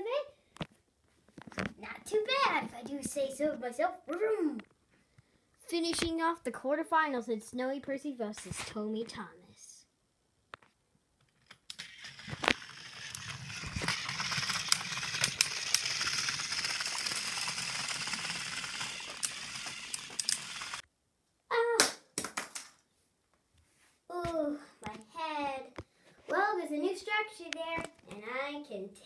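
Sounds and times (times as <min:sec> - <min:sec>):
toy train motor whirring: 0:11.7 - 0:20.8.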